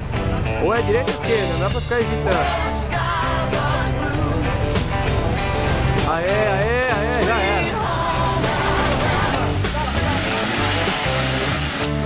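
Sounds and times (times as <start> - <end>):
rock drums and bass: 0.0 - 12.0.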